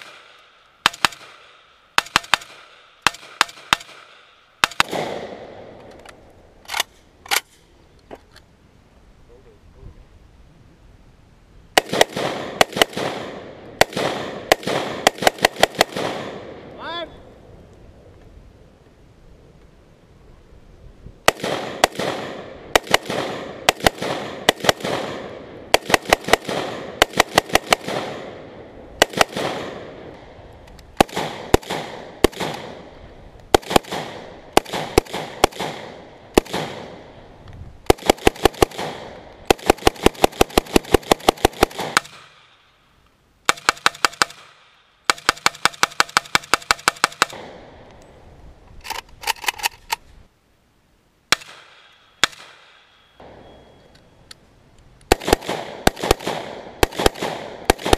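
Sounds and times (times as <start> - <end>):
rifle gunshots with echo: 0.0 - 5.8, 11.8 - 16.8, 21.2 - 30.4, 31.0 - 42.7, 43.4 - 47.9, 51.3 - 53.8, 55.1 - 57.9.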